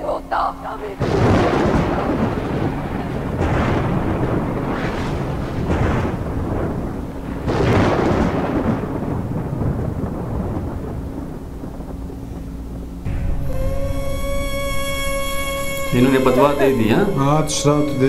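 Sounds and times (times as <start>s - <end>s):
rolling thunder: 0.7s - 18.0s.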